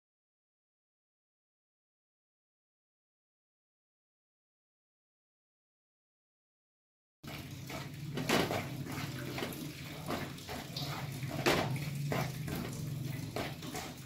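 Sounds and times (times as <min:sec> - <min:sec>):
flour sizzling in oil: 0:07.2 - 0:14.0
wooden spatula scraping a pan: 0:07.3 - 0:14.0.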